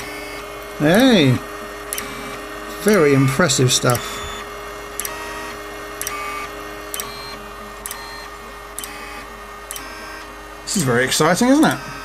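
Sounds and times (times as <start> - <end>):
stepper motors whining: 0.0 - 12.0
probe clicking: 0.9 - 1.2, 1.9 - 4.4, 5.0 - 9.0, 9.7 - 10.3.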